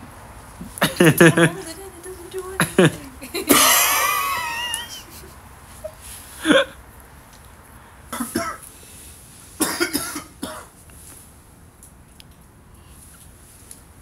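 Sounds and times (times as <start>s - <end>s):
person coughing: 0.8s - 1.6s, 2.6s - 4.9s, 6.4s - 6.8s, 8.2s - 8.6s, 9.6s - 10.7s.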